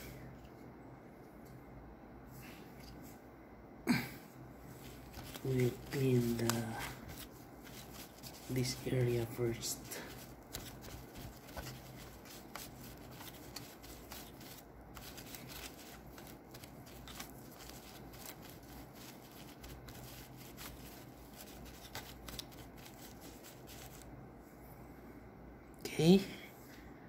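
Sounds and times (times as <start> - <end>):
tissue rubbing laptop fan: 4.6 - 24.3.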